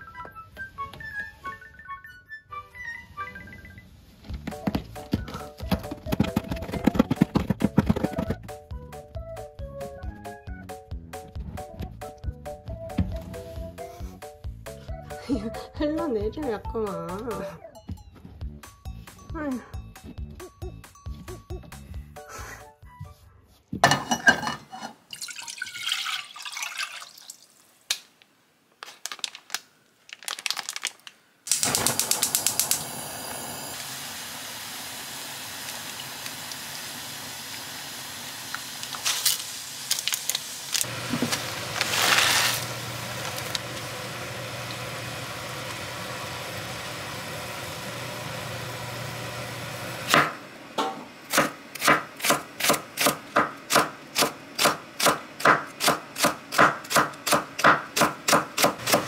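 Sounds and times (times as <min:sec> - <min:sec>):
steady hiss of heating liquid: 0:31.4 - 0:49.2
gas stove igniter clicks: 0:31.5 - 0:33.0
knife chopping on wooden board: 0:51.3 - 0:59.0.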